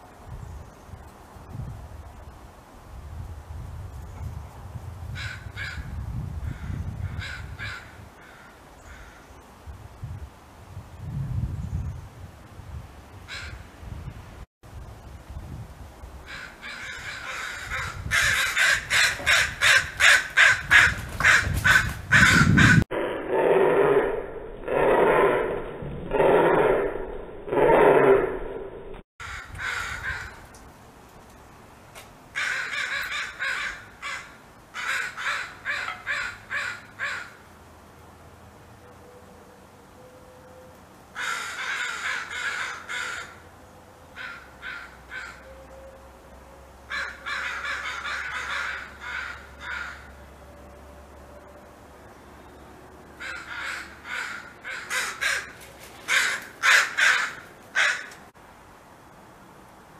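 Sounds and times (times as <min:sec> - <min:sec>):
crows cawing: 0:06.5 - 0:09.3, 0:16.3 - 0:22.8, 0:29.2 - 0:30.4, 0:32.4 - 0:37.4, 0:41.2 - 0:43.4, 0:44.2 - 0:45.5, 0:46.9 - 0:50.2, 0:53.2 - 0:58.3.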